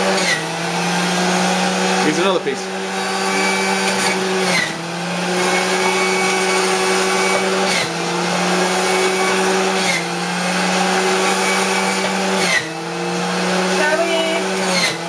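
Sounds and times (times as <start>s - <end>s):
juicer motor running: 0.0s - 15.0s.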